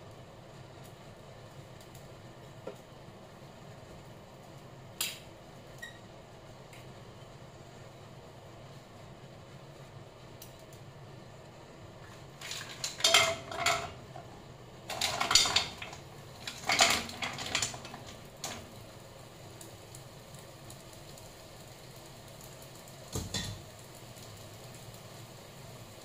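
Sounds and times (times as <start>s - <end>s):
mussel shells clattering in pan: 12.0s - 18.8s.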